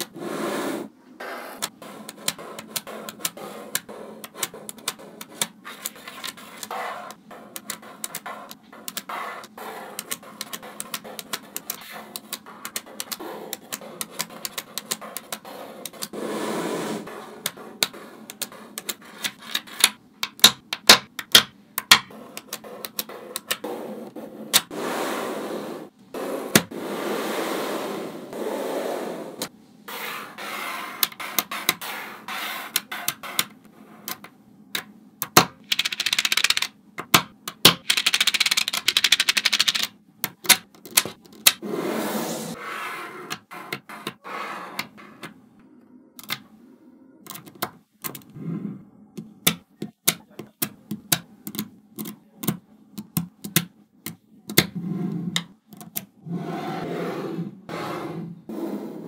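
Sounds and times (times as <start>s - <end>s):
magnetic balls clicking together: 1.6s - 16.2s, 17.4s - 23.7s, 32.7s - 41.6s, 47.2s - 48.3s, 49.2s - 54.7s, 55.4s - 56.2s.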